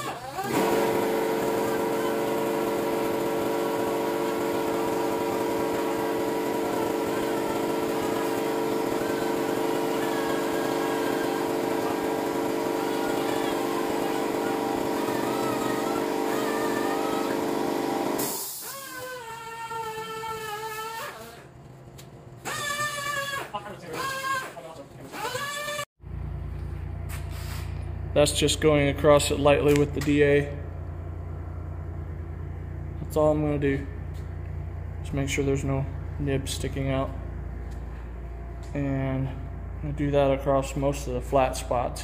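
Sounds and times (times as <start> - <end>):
sander whine: 0.4 - 18.2.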